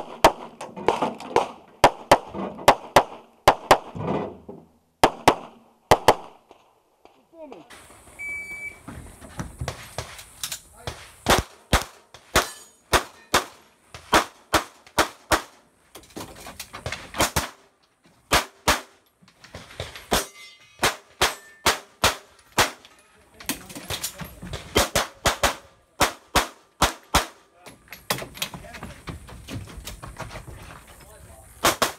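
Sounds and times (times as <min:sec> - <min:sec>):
pistol shots: 0:11.2 - 0:15.6, 0:18.3 - 0:19.0, 0:20.1 - 0:22.8, 0:24.8 - 0:27.4, 0:31.6 - 0:31.9.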